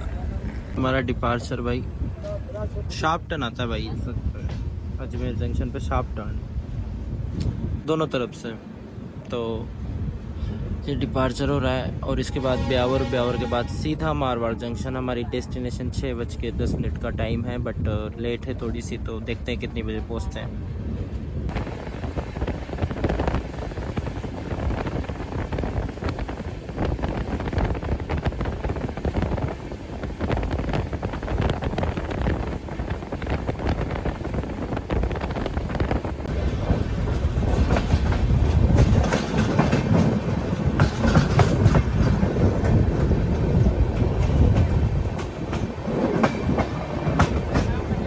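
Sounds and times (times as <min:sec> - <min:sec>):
train wheels clickety-clack: 0:04.3 - 0:05.7, 0:21.5 - 0:48.0.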